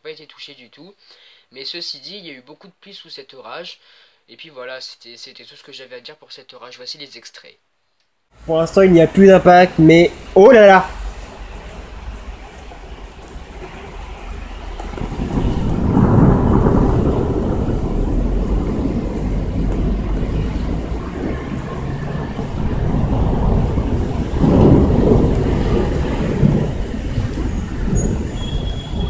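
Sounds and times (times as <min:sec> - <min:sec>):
rolling thunder: 0:08.6 - 0:29.0.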